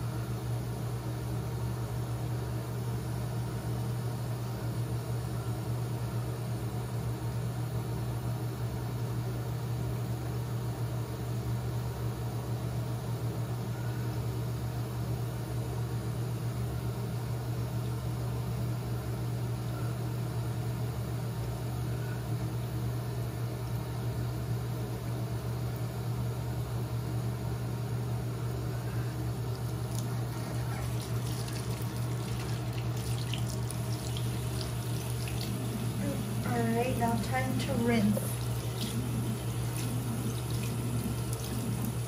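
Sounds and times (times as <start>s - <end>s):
low hum: 29.0s - 42.0s
hands splashing in water: 29.6s - 36.0s
water running from tap into sink: 29.6s - 42.0s.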